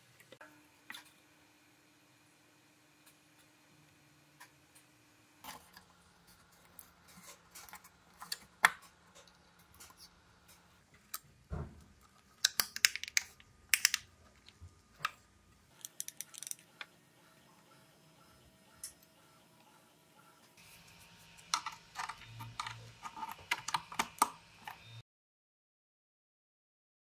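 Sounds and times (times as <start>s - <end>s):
plastic parts clicking and tapping: 12.0s - 16.9s, 21.5s - 24.8s.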